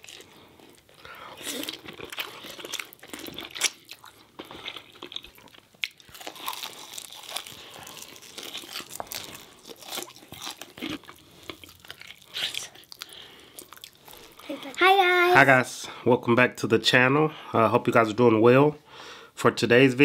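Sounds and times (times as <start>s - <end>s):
people chewing food: 0.0s - 14.8s.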